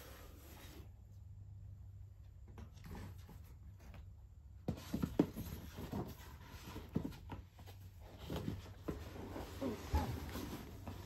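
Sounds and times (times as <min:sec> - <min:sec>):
cardboard rubbing and scraping: 0:04.7 - 0:11.0.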